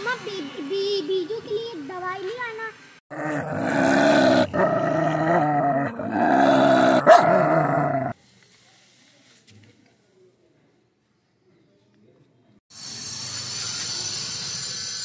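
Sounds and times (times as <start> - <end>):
dog growling: 3.1 - 8.2.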